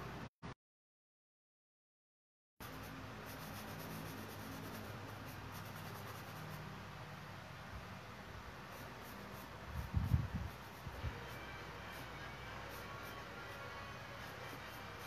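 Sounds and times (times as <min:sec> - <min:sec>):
painting tool scratching canvas: 0:02.6 - 0:06.6, 0:08.7 - 0:15.0
room noise with low hum: 0:02.6 - 0:15.0.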